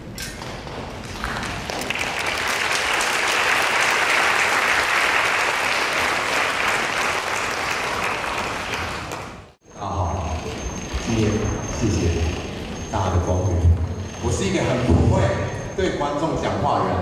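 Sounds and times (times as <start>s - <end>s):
audience applauding: 1.1s - 9.6s.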